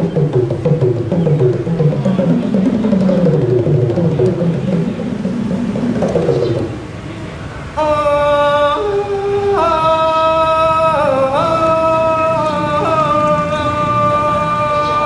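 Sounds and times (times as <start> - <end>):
drums: 0.0 - 7.0
man singing long held notes: 7.8 - 15.0.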